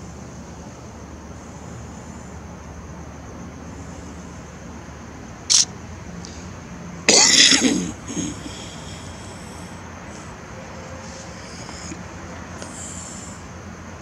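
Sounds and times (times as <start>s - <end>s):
short hiss: 5.5s - 5.7s
person coughing harshly: 7.1s - 8.9s.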